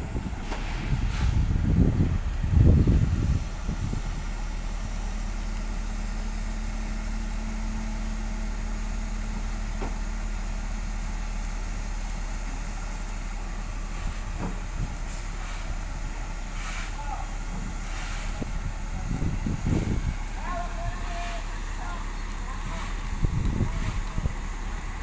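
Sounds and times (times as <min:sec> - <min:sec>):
low rumble: 0:00.0 - 0:06.5, 0:17.2 - 0:25.0
diesel engine running: 0:00.0 - 0:25.0.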